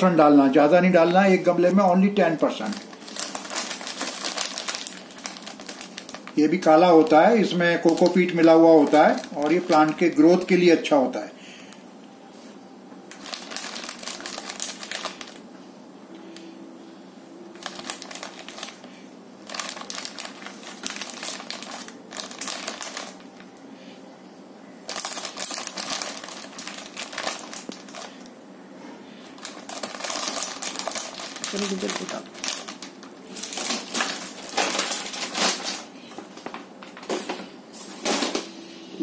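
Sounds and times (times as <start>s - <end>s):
plastic packet crinkling: 1.9s - 10.6s, 13.1s - 15.4s, 17.5s - 23.5s, 24.8s - 28.3s, 29.3s - 37.1s.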